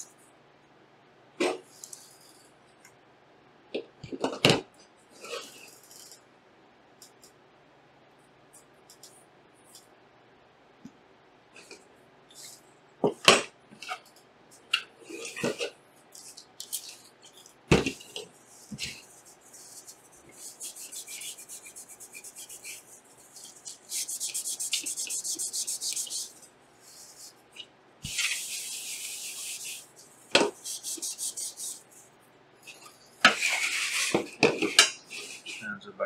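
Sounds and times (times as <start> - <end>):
paper towel rubbing: 18.3 - 27.4, 28.0 - 32.0.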